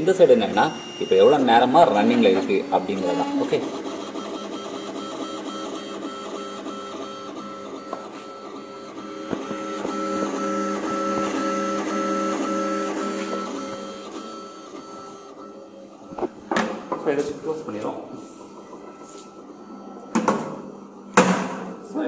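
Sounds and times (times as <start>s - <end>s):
printer stepper motors whining: 0.0s - 16.4s.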